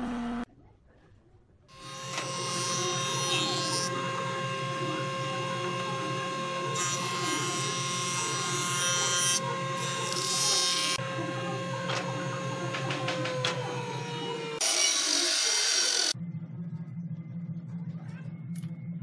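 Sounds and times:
wood planer motor whine: 0.0 - 0.5, 1.7 - 16.2
planer shaving a board: 1.7 - 16.2
low hum: 16.2 - 19.0.

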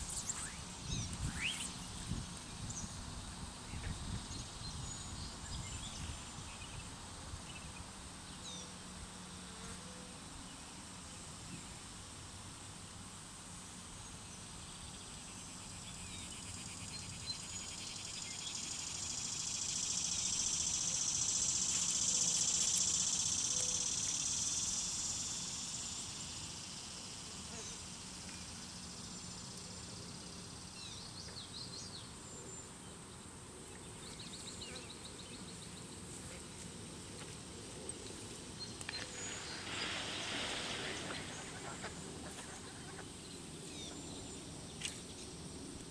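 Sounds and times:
faint outdoor ambience: 0.0 - 45.9
high-pitched insect buzzing: 17.6 - 28.0.

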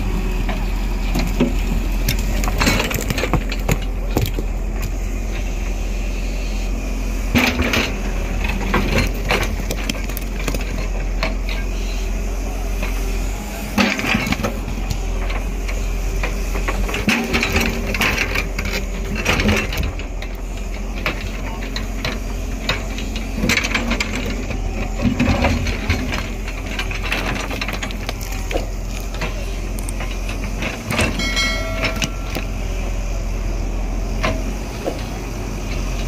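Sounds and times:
excavator diesel engine running: 0.0 - 36.0
stone crunching on stone: 2.1 - 4.5.

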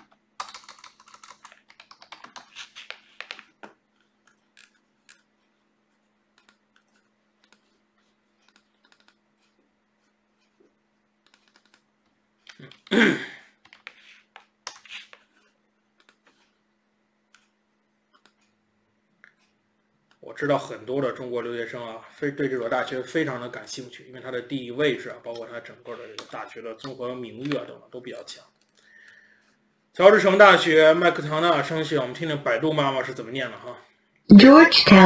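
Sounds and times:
keyboard typing: 0.0 - 5.3, 6.4 - 7.8, 8.4 - 9.2, 11.2 - 12.9, 16.0 - 16.5, 18.1 - 18.5
faint steady hum: 0.0 - 35.0.

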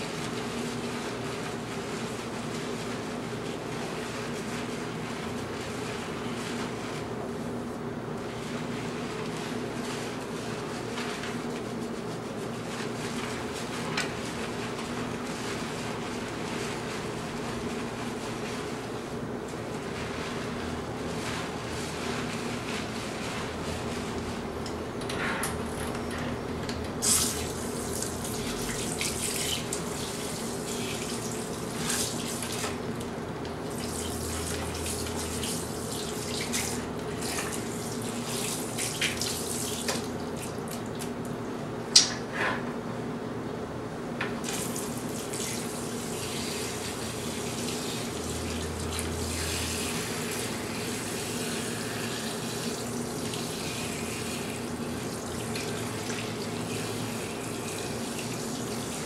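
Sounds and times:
tap water running into basin: 27.0 - 41.4, 44.2 - 59.0.

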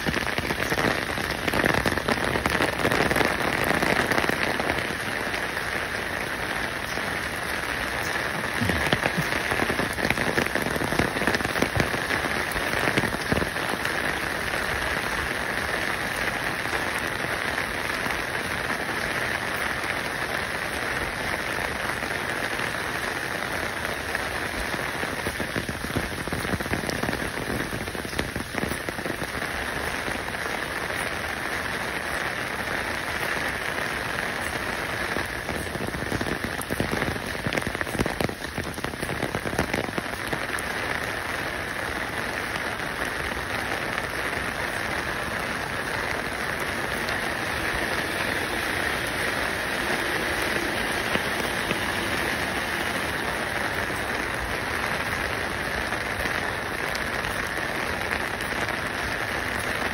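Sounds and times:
pattering water hiss: 0.0 - 59.9.

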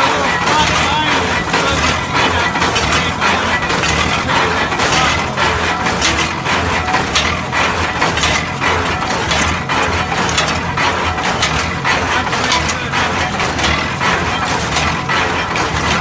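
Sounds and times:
drilling rig machinery knocking: 0.0 - 16.0
engine drone: 0.0 - 16.0.

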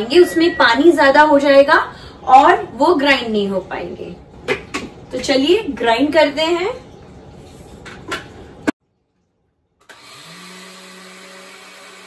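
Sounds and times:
blender motor grinding: 9.8 - 12.0.

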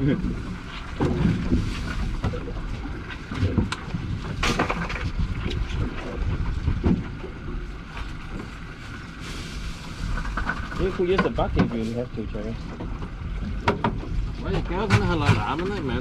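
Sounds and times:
water against hull: 0.0 - 16.0
wind on microphone: 0.0 - 16.0
knocks and clatter: 3.3 - 7.3, 12.7 - 16.0.

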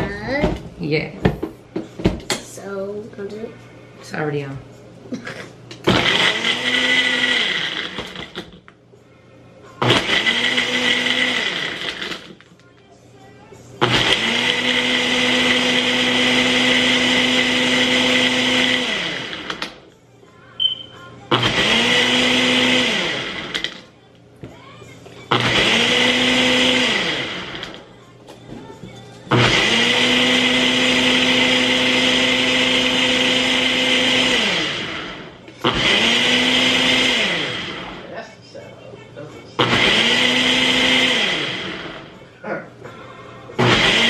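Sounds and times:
blender motor whirring: 5.8 - 8.6, 9.8 - 12.5, 13.8 - 19.8, 21.3 - 23.9, 25.3 - 27.9, 29.3 - 38.1, 39.6 - 42.2, 43.6 - 44.0.

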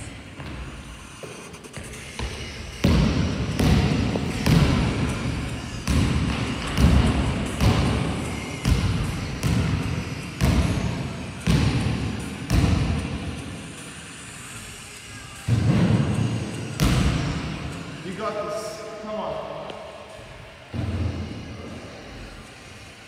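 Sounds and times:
basketball bouncing on gym floor: 1.8 - 13.2, 16.8 - 17.6.

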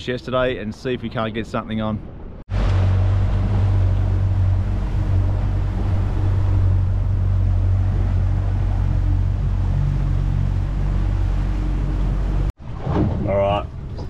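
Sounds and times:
water rushing past hull: 2.0 - 14.0
wind noise: 2.0 - 14.0
outboard motor humming: 2.5 - 12.6.

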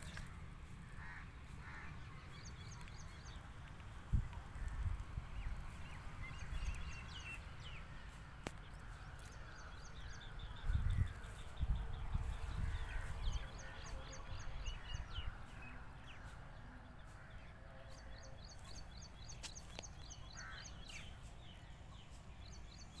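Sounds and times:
wind rumble on microphone: 0.0 - 17.3
scattered bird calls: 0.0 - 23.0
small birds chirping: 0.0 - 23.0.

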